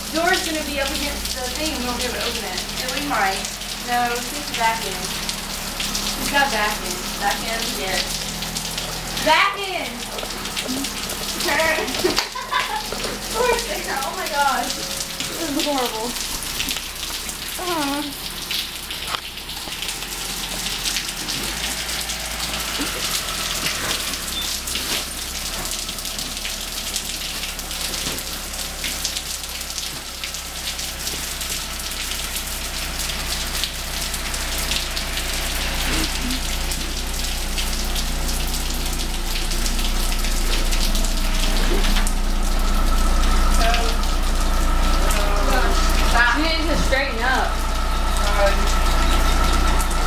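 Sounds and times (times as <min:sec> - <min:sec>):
car engine rumble: 0:00.0 - 0:50.0
heavy rain falling: 0:00.0 - 0:50.0.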